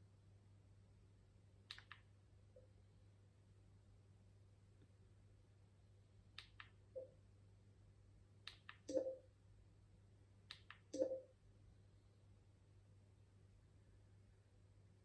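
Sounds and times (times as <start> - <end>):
remote control button clicks: 10.5 - 11.3.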